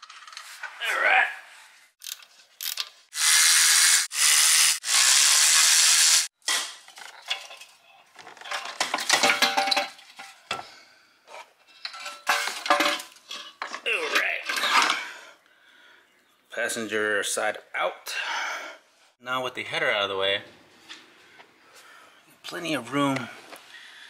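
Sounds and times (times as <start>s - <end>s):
electric ratchet running: 3.1s - 6.3s
metallic clanks and rattles: 7.2s - 10.6s, 11.7s - 15.1s.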